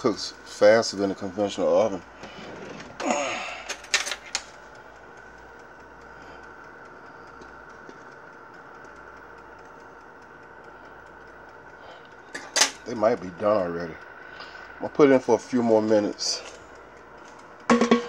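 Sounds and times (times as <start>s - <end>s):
faint high whine: 4.8s - 18.0s.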